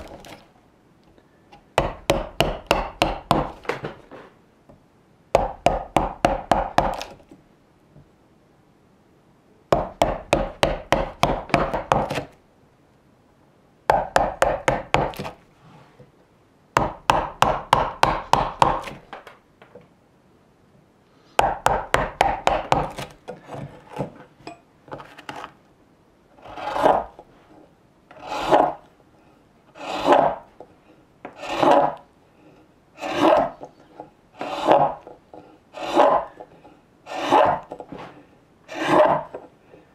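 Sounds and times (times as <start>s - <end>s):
gouge slicing wood: 0.0s - 0.5s, 5.4s - 7.3s, 9.8s - 12.4s, 13.9s - 15.4s, 21.4s - 24.2s, 26.4s - 27.2s, 28.1s - 28.8s, 29.7s - 30.6s, 31.3s - 32.0s, 33.0s - 38.1s, 38.7s - 39.4s
mallet tapping gouge: 1.8s - 3.6s.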